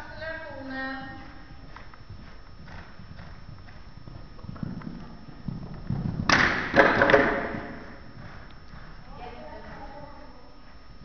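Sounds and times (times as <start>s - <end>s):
hoofbeats on soft ground: 0.4s - 6.3s, 7.9s - 11.0s.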